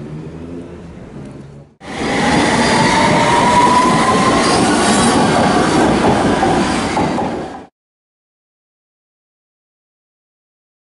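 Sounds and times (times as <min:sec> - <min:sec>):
train wheels rumbling on rail: 0:01.8 - 0:07.7
thin wheel squeal: 0:02.0 - 0:05.2.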